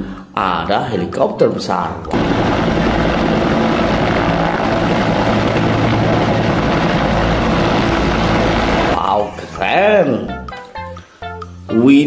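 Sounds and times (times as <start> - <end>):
helicopter engine noise: 2.1 - 9.0
helicopter rotor beat: 2.1 - 9.0.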